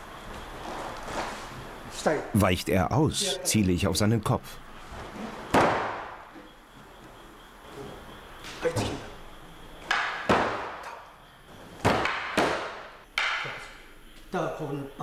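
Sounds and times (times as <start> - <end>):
wooden swords striking: 9.9 - 11.0, 11.8 - 13.7.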